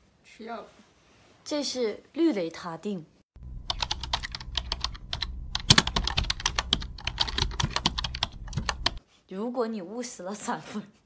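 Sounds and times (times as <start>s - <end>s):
steady low hum: 3.4s - 9.0s
keyboard key clicks: 3.7s - 9.0s.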